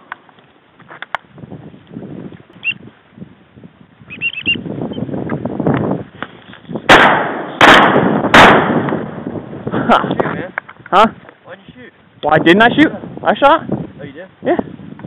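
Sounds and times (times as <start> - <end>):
high bird chirps: 2.6 - 2.8, 4.1 - 5.1
rustling movement: 5.3 - 6.9
shotgun blast: 6.9 - 9.2.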